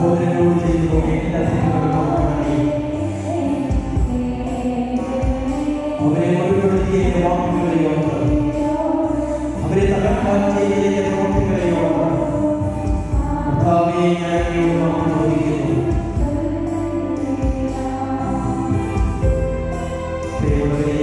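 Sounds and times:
slow devotional choir singing: 0:00.0 - 0:21.0.

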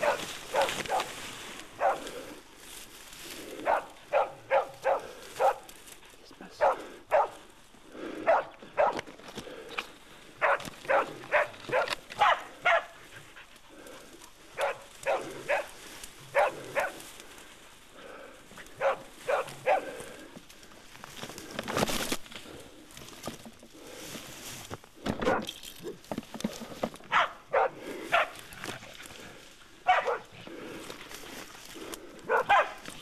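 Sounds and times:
dog barking: 0:00.0 - 0:01.1, 0:01.8 - 0:02.1, 0:03.6 - 0:05.7, 0:06.6 - 0:07.4, 0:08.2 - 0:09.0, 0:10.4 - 0:13.0, 0:14.6 - 0:17.0, 0:18.8 - 0:20.0, 0:25.2 - 0:26.0, 0:27.1 - 0:28.4, 0:29.8 - 0:30.3, 0:32.3 - 0:32.8.

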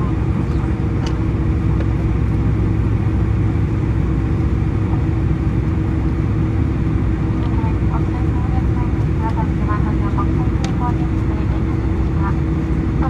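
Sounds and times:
jet engine drone in cabin: 0:00.0 - 0:13.0.

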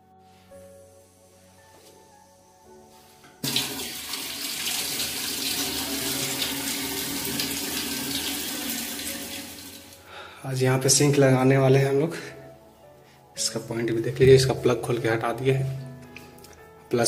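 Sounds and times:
water running from a tap: 0:03.4 - 0:10.0.

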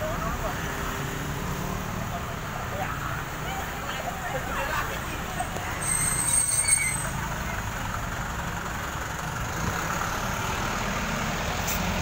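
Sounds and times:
engine idling: 0:07.1 - 0:10.7.

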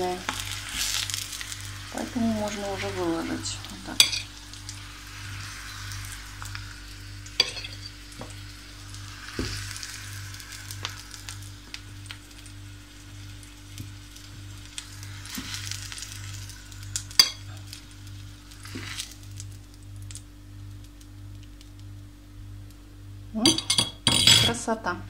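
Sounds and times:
zucchini sizzling in a pan: 0:00.0 - 0:23.6
steady low hum: 0:00.0 - 0:25.0
metal fork clinking: 0:07.4 - 0:07.9, 0:17.2 - 0:17.4, 0:23.4 - 0:24.6.

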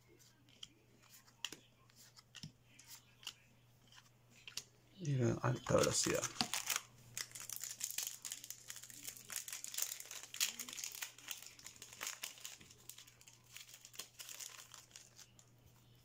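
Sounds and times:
foil wrapper crinkling and tearing: 0:05.6 - 0:15.5.

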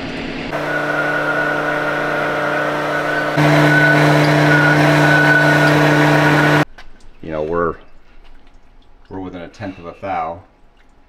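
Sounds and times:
honing machine grinding: 0:00.5 - 0:06.6.

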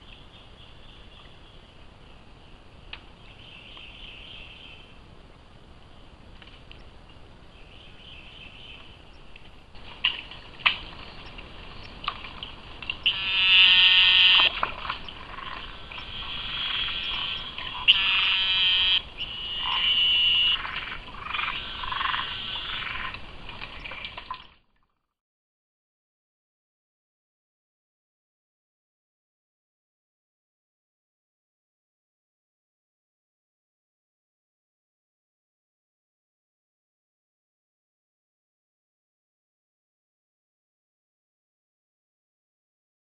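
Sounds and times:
frogs calling: 0:13.0 - 0:24.0.

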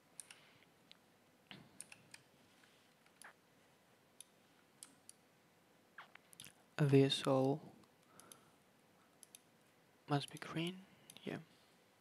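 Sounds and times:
computer mouse clicks: 0:00.2 - 0:00.4, 0:01.8 - 0:02.3, 0:04.2 - 0:05.2, 0:07.4 - 0:08.4, 0:09.2 - 0:09.5.

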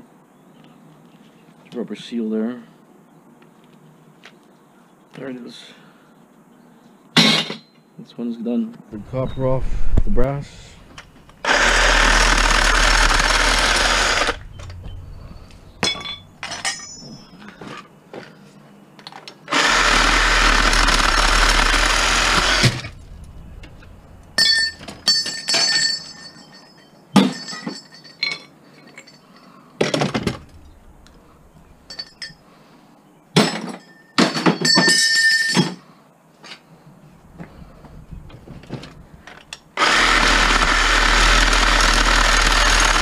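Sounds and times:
power tool cutting metal pipe: 0:11.4 - 0:16.0, 0:19.5 - 0:24.8, 0:39.8 - 0:43.0
metal pieces clinking and clattering: 0:14.1 - 0:17.6, 0:23.6 - 0:29.6.

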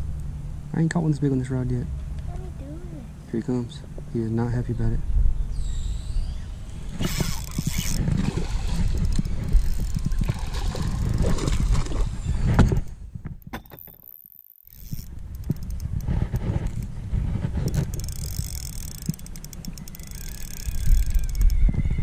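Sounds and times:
fishing reel clicking: 0:07.0 - 0:08.0, 0:08.9 - 0:11.2, 0:13.7 - 0:16.9, 0:17.7 - 0:21.6.

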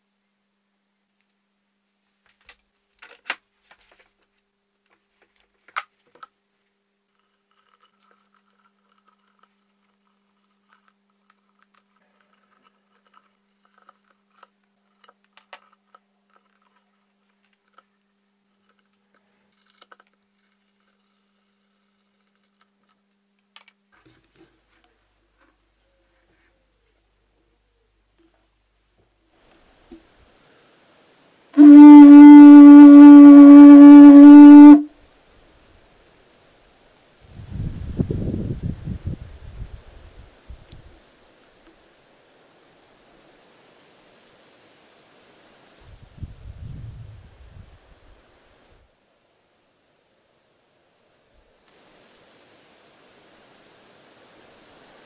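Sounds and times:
soft rustling of twine: 0:01.1 - 0:30.8.

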